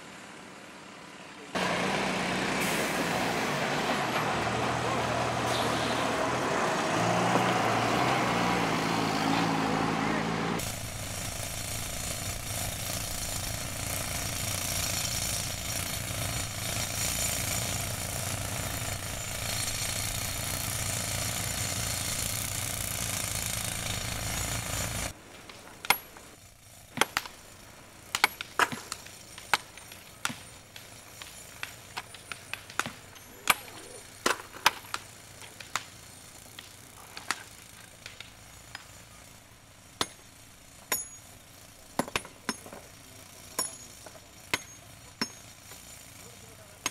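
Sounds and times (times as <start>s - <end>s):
pneumatic rock drills: 10.6s - 46.9s
hammers splitting stone: 25.4s - 26.3s, 26.9s - 27.4s, 28.1s - 36.0s, 41.9s - 42.9s, 43.5s - 45.9s.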